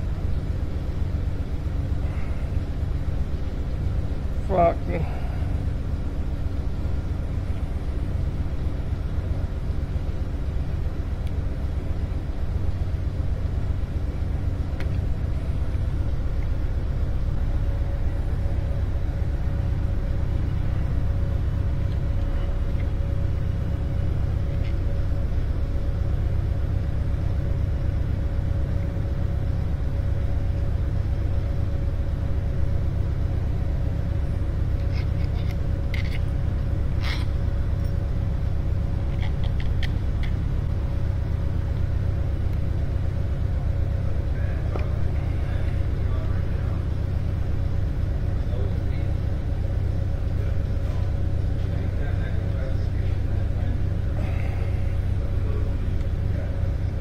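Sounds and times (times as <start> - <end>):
low rumble with hum: 0.0 - 57.0
light metallic clicks of tools: 34.8 - 36.3, 37.0 - 38.0.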